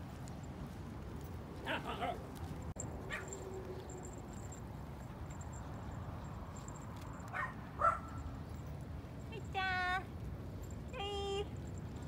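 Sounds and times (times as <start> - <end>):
dog yipping: 3.1 - 4.0, 7.3 - 8.2.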